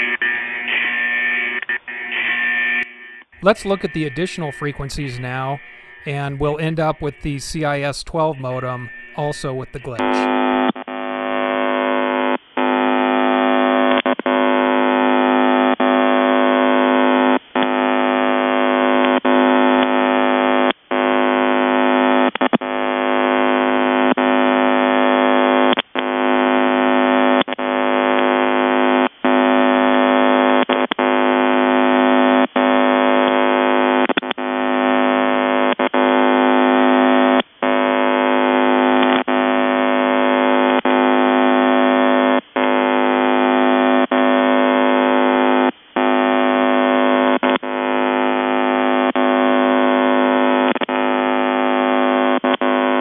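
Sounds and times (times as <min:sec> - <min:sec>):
harsh shortwave radio buzz: 0:03.4 - 0:53.0.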